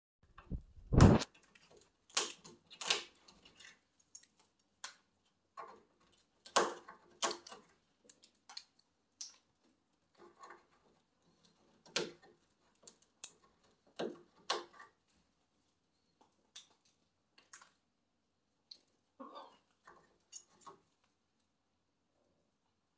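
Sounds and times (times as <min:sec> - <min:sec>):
beak gnawing wooden branches: 0:01.1 - 0:15.3.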